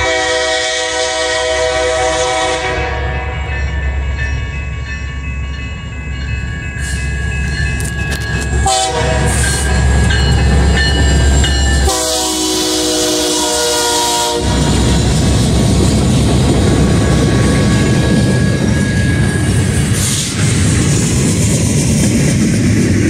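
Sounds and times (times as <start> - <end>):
train air horn: 0.0 - 3.4, 8.6 - 9.6, 11.8 - 15.2
diesel locomotive engine rumble: 0.0 - 23.0.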